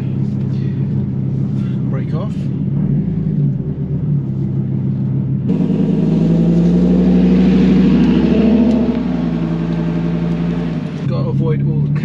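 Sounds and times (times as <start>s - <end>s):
truck engine pulling away: 5.5s - 11.1s.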